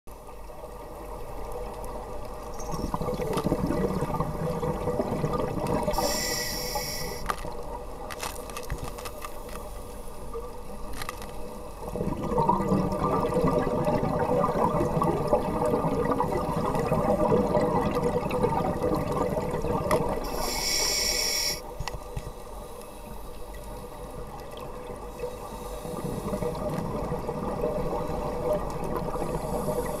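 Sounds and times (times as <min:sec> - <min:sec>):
underwater bubbles gurgling: 0:00.1 - 0:30.0
brief high hiss: 0:06.0 - 0:07.2, 0:20.3 - 0:21.7.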